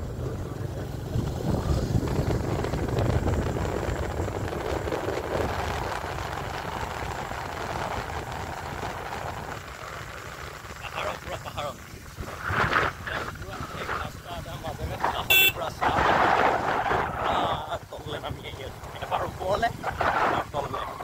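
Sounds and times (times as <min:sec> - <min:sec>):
wind noise on microphone: 0:00.0 - 0:09.9, 0:10.8 - 0:21.0
motorcycle engine running: 0:00.0 - 0:13.6, 0:14.2 - 0:15.6.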